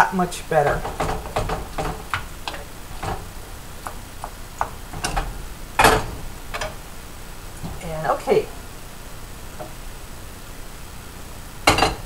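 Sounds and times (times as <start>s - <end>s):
wooden spoon knocking saucepan: 0.6s - 6.8s.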